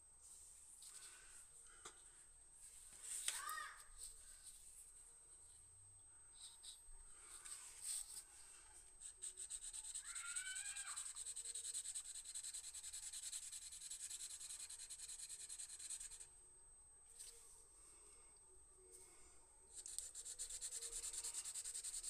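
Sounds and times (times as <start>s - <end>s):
pen scratching on paper: 9.0s - 16.3s, 19.8s - 22.0s.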